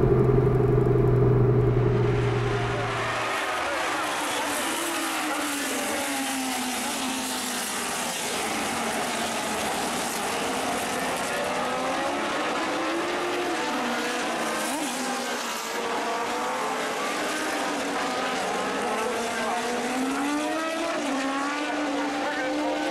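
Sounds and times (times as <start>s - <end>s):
car engine running at speed: 0.0s - 4.3s
road noise: 0.0s - 8.7s.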